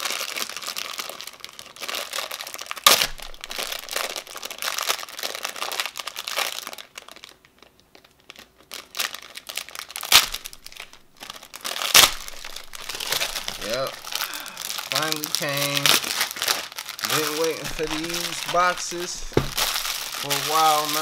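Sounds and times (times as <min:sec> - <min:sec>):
packaging crinkling: 0:00.0 - 0:21.0
sharp knocks: 0:02.9 - 0:04.2, 0:10.2 - 0:11.3, 0:17.7 - 0:20.1.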